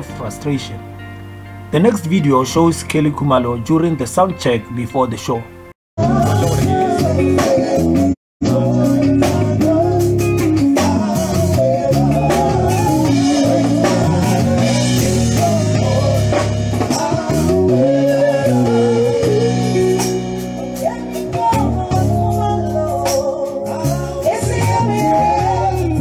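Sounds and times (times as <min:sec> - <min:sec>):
woman singing into microphone: 0:06.0 - 0:19.8, 0:20.8 - 0:26.0
live rock band playing: 0:06.0 - 0:26.0.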